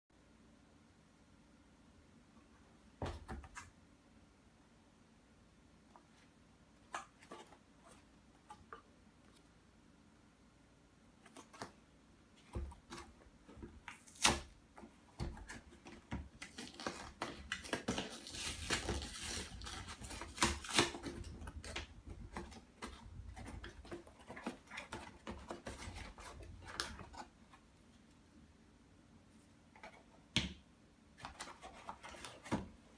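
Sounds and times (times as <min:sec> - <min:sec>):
cardboard tearing: 0:16.4 - 0:22.6.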